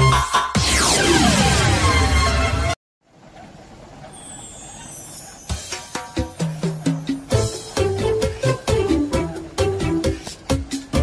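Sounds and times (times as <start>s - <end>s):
electronic dance music: 0.0s - 2.7s, 5.5s - 11.0s.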